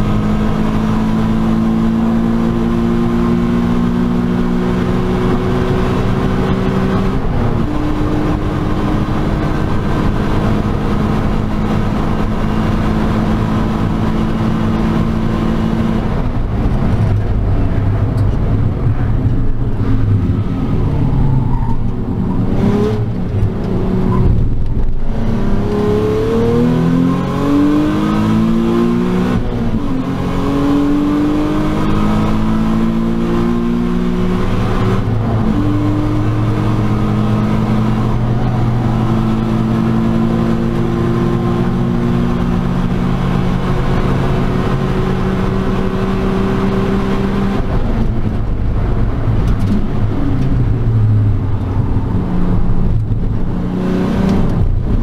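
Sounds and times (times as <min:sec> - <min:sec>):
car engine at full throttle: 0:00.0 - 0:55.0.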